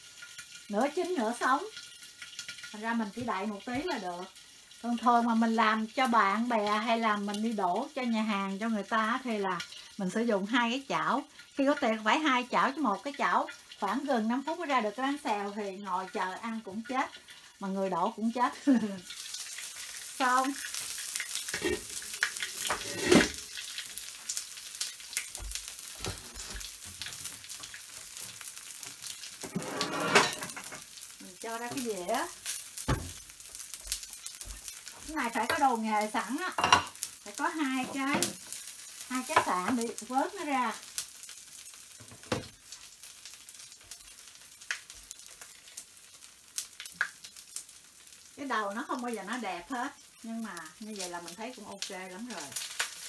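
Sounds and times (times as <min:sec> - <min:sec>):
crepe sizzling in oil: 0:00.0 - 0:53.0
spatula scraping pan: 0:21.1 - 0:23.6, 0:29.4 - 0:30.8.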